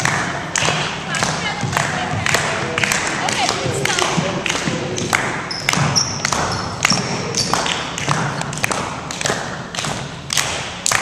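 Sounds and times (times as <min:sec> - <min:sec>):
voices: 0:00.0 - 0:08.4
people clapping to a beat: 0:00.0 - 0:11.0.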